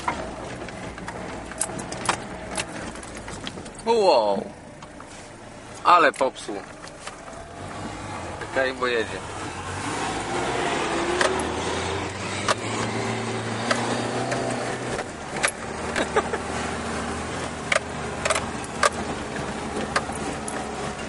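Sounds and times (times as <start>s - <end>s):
sharp clicks and knocks: 0.0s - 3.8s, 11.0s - 16.3s, 17.6s - 20.7s
off-road vehicle engine running: 0.0s - 21.0s.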